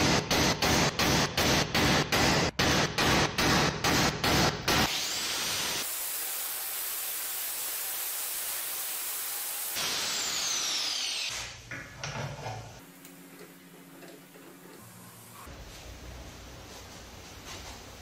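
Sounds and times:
angle grinder cutting steel: 0:09.7 - 0:11.5.

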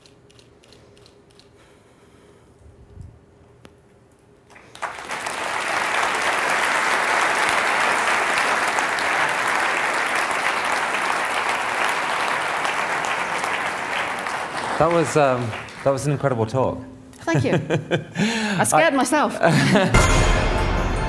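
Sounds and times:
audience applauding: 0:04.5 - 0:16.5.

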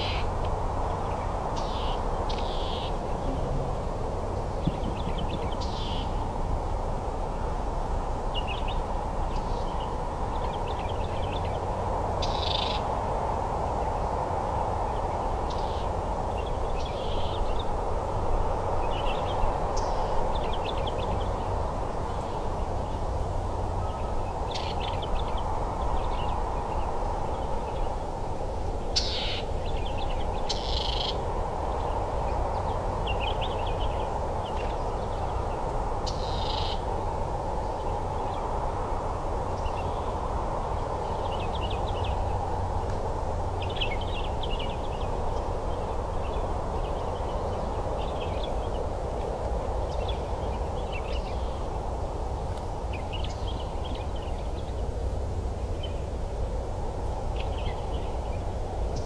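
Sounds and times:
steady rushing noise: 0:00.0 - 0:59.0
birds chirping: 0:00.9 - 0:06.3.

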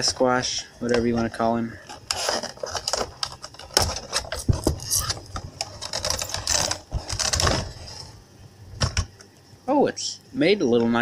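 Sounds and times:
plastic packaging rustling: 0:00.9 - 0:08.1
cardboard box opening: 0:01.9 - 0:08.1.

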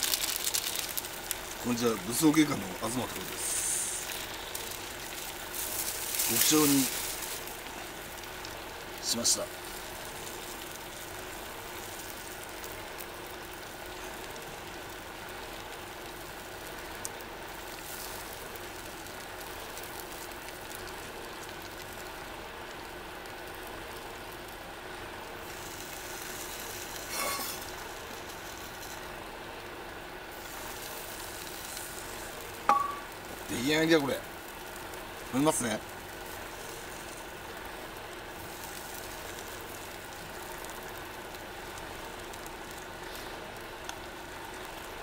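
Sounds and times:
food sizzling in a pan: 0:00.0 - 0:45.0.

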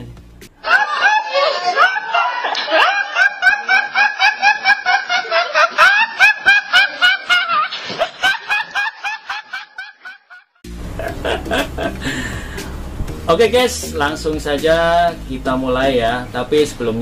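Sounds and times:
young man laughing high-pitched: 0:00.6 - 0:10.4, 0:11.0 - 0:12.4.

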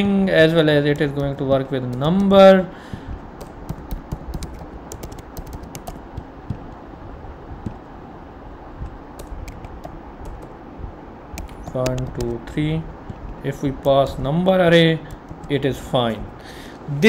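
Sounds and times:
computer keyboard typing: 0:00.7 - 0:02.6, 0:03.3 - 0:06.8, 0:08.8 - 0:10.6, 0:11.3 - 0:14.4, 0:15.0 - 0:15.6.

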